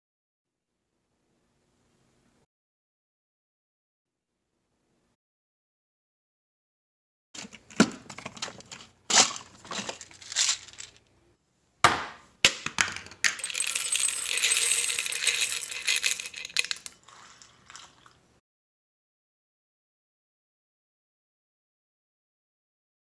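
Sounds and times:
tablets rattling into ceramic bowl: 0:09.6 - 0:11.0, 0:13.2 - 0:18.2.

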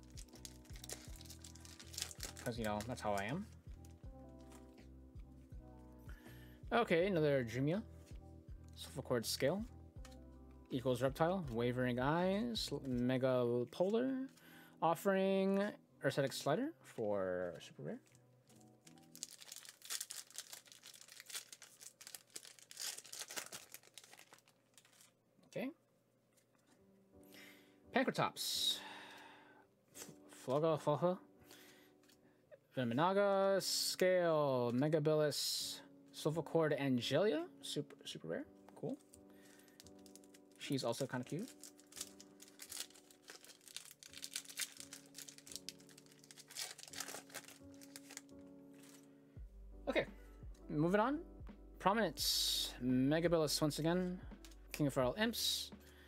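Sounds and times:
foil wrapper crinkling and tearing: 0:00.0 - 0:04.7, 0:18.5 - 0:25.2, 0:39.0 - 0:49.1.

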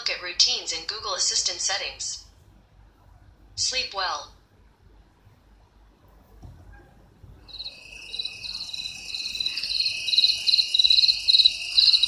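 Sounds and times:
crickets chirping: 0:07.4 - 0:12.0.

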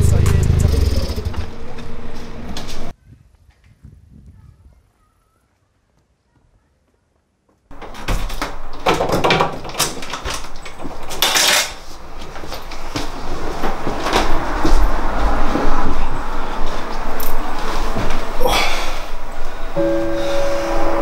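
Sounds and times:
knocks clicks and clatter: 0:07.7 - 0:16.1.

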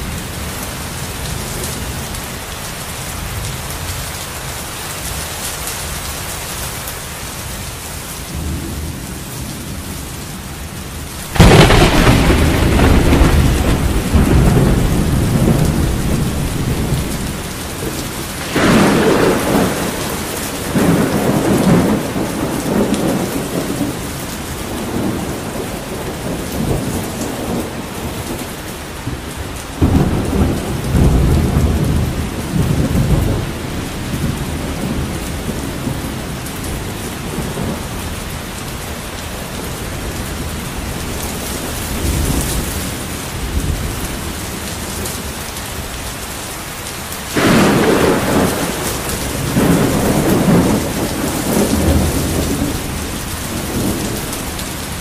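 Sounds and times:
heavy rain: 0:00.0 - 0:55.0
rolling thunder: 0:08.3 - 0:38.4, 0:47.3 - 0:55.0
sharp thunder crack: 0:11.3 - 0:23.8, 0:47.4 - 0:54.2.

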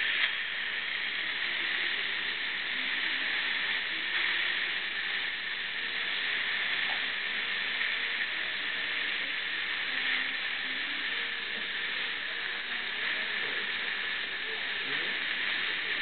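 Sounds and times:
air-water spray hissing: 0:00.0 - 0:16.0
dental suction hissing: 0:00.0 - 0:16.0.

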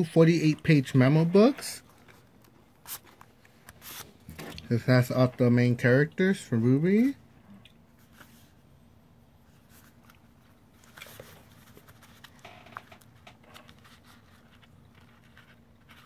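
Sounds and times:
low room hum: 0:00.0 - 0:16.0
paper pages rustling: 0:09.5 - 0:16.0.

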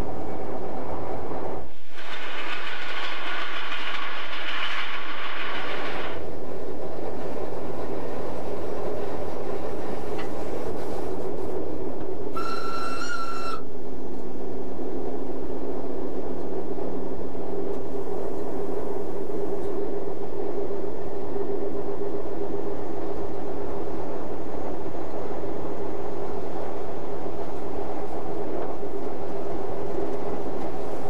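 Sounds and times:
electric train rumble and hum: 0:00.0 - 0:31.0
high-pitched train horn toot: 0:12.3 - 0:13.7.

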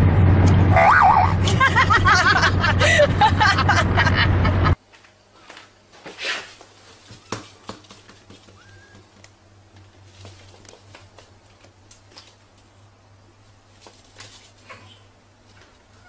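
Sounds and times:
puppy claws tapping on floor: 0:07.0 - 0:12.6.

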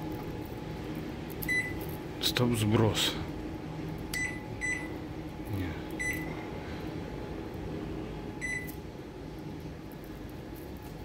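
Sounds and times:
microwave keypad beeps: 0:01.5 - 0:01.8, 0:04.2 - 0:04.9, 0:06.0 - 0:06.3, 0:08.4 - 0:08.8.

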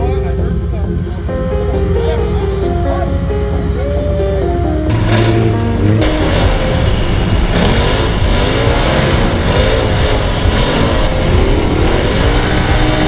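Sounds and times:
utility vehicle engine revving: 0:04.4 - 0:13.0
wind roar: 0:04.9 - 0:13.0.

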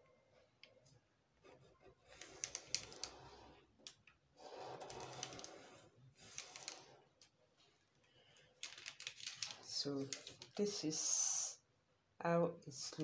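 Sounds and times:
pen scratching along a plastic ruler: 0:01.4 - 0:03.7, 0:04.4 - 0:07.2
ruler and paper clicking: 0:02.0 - 0:07.3, 0:08.6 - 0:10.7.

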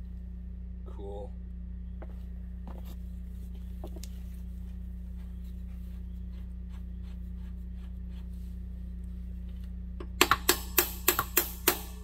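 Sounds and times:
steady low hum: 0:00.0 - 0:12.0
hand tools clicking and tapping: 0:10.0 - 0:12.0.

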